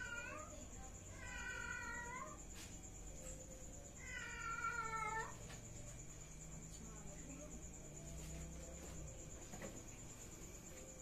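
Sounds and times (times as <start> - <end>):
cat meowing: 1.1 - 2.4, 4.0 - 5.4.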